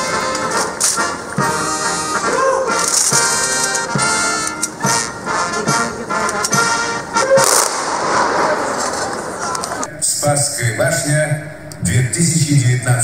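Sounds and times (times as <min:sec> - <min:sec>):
military band playing a march: 0:00.0 - 0:09.8.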